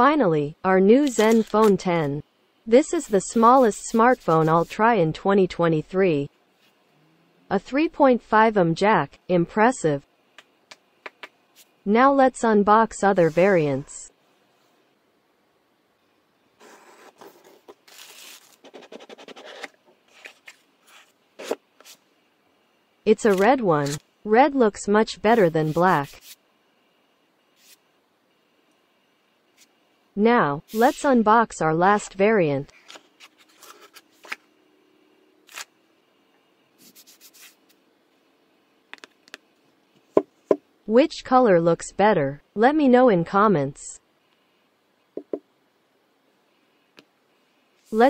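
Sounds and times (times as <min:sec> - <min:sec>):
cardboard rustling and scraping: 0:16.6 - 0:22.0
soft rubbing: 0:36.8 - 0:37.7.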